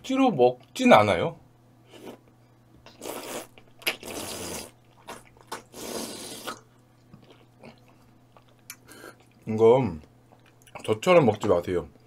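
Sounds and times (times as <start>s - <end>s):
wet slurping: 2.9s - 6.7s.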